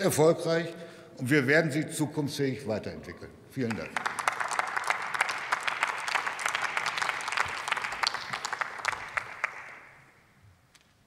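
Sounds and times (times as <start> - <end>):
applause: 3.6 - 10.2.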